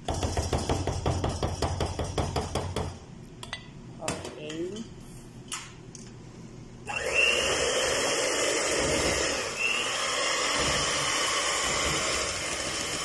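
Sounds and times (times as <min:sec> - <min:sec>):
electric hand mixer whisking batter: 0:06.9 - 0:13.0.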